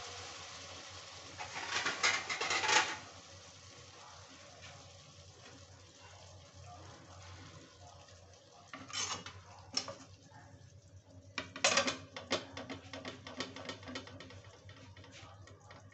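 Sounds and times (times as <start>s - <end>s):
kitchenware clattering: 1.4s - 3.1s, 8.7s - 10.1s, 11.4s - 15.2s
plate knocking on metal pot: 11.4s - 14.5s.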